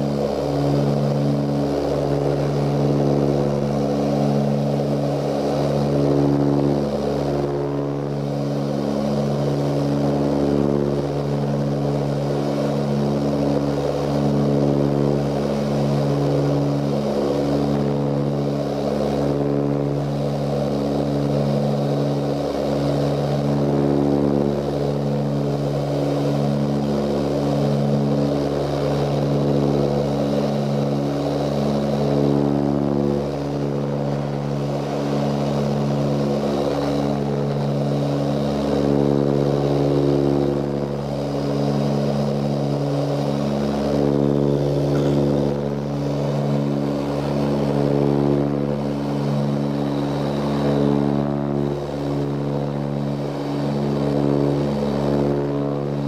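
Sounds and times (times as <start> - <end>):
propeller engines droning in cabin: 0.0 - 56.0.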